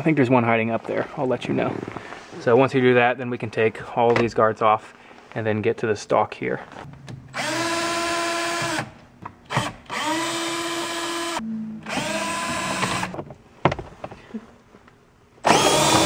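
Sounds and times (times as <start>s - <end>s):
cordless drill motor whirring: 9.5s - 13.2s, 15.4s - 16.0s.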